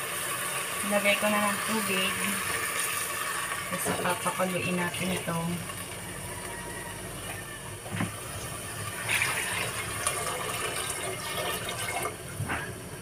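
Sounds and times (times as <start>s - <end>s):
water pouring into metal pot: 0.0s - 6.2s, 8.1s - 12.2s.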